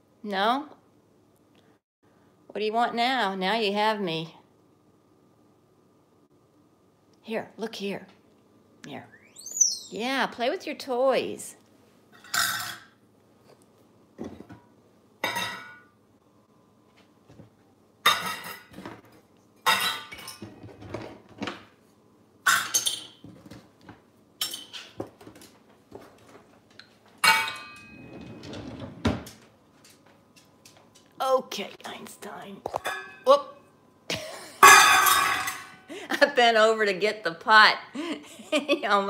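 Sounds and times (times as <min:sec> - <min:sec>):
metal bowls clattering on stone: 0:12.2 - 0:13.0, 0:15.2 - 0:15.9, 0:32.8 - 0:33.3, 0:34.6 - 0:35.8.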